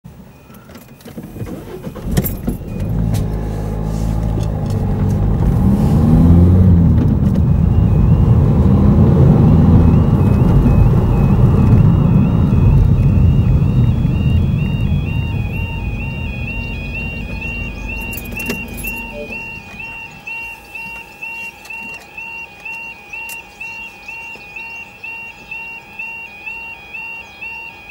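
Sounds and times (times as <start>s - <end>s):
car engine pulling through gears: 0.1s - 27.9s
tyre and road rumble: 0.6s - 20.4s
level crossing two-tone alarm: 5.3s - 27.9s.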